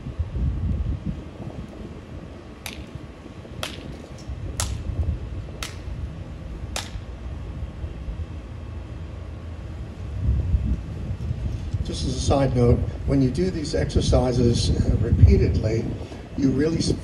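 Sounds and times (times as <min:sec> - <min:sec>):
wind rumble on microphone: 0:00.0 - 0:17.0
sharp snaps: 0:02.6 - 0:02.9, 0:04.6 - 0:04.9, 0:05.6 - 0:05.9, 0:06.7 - 0:07.0.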